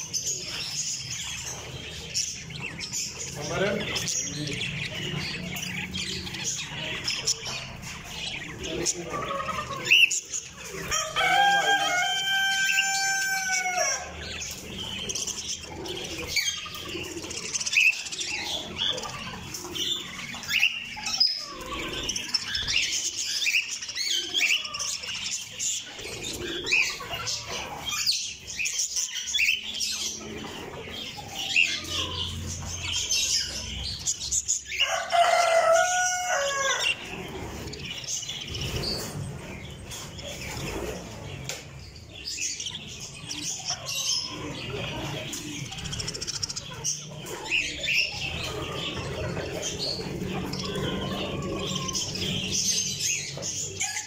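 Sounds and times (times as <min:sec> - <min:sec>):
budgerigars chirping: 0:00.0 - 0:54.0
drawn-out bird calls: 0:42.2 - 0:54.0.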